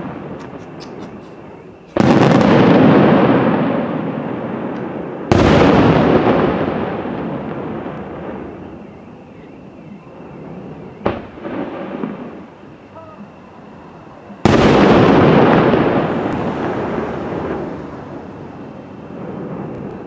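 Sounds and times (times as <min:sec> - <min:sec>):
firework shells bursting: 0:00.0 - 0:08.6.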